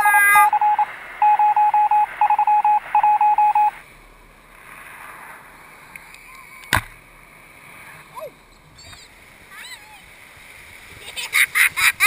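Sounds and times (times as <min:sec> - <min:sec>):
morse code electronic beeping: 0:00.0 - 0:03.8
faint steady hiss: 0:00.0 - 0:12.0.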